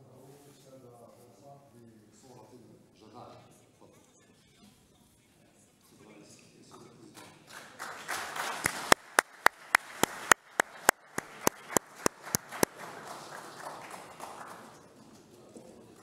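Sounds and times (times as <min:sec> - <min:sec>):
person clapping loudly: 0:07.2 - 0:14.8
audience applause: 0:07.4 - 0:15.0.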